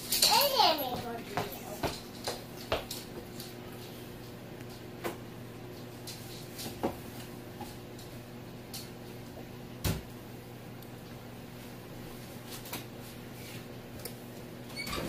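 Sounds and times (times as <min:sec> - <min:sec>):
steady low hum: 0:00.0 - 0:14.9.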